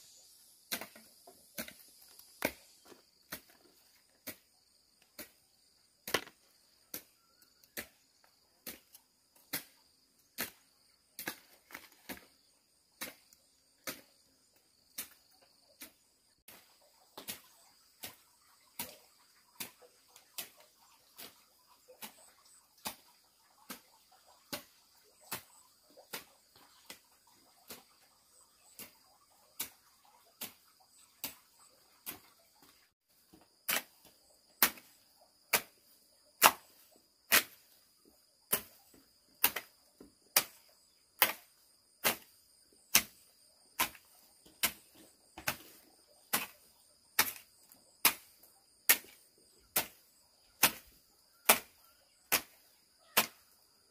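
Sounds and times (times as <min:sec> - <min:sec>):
hand tool chopping: 0:00.7 - 0:04.5, 0:06.0 - 0:07.1, 0:33.3 - 0:35.8, 0:36.4 - 0:37.7, 0:38.5 - 0:39.7, 0:40.3 - 0:42.3, 0:42.9 - 0:53.5.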